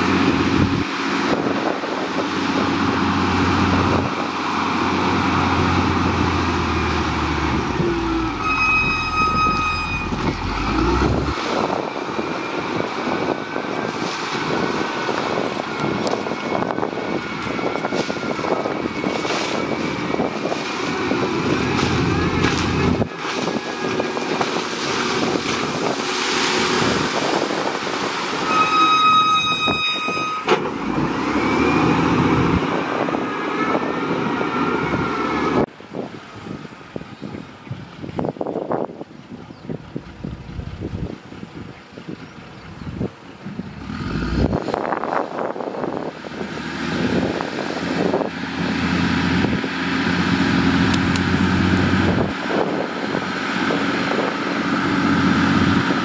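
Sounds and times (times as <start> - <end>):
wheel loader diesel engine: 0.0 - 56.0
horn blasts: 7.8 - 10.9, 28.4 - 30.6.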